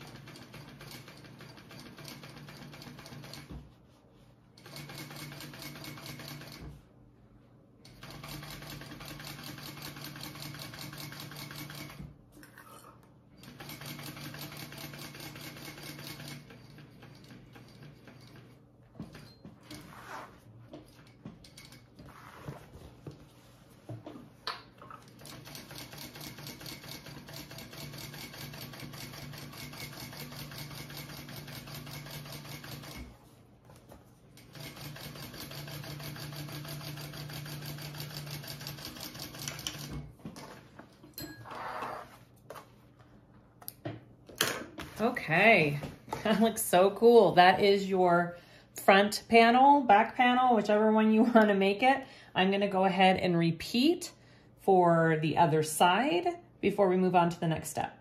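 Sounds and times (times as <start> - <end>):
sewing machine stitching: 0.0 - 3.5, 4.6 - 6.7, 7.9 - 12.1, 13.4 - 20.3, 25.1 - 33.2, 34.4 - 40.5.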